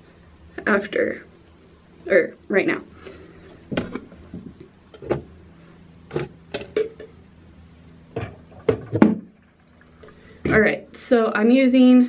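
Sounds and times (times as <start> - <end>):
faint steady hum: 0.0 - 12.0
bottles knocking and clacking: 6.1 - 7.2, 8.2 - 9.4.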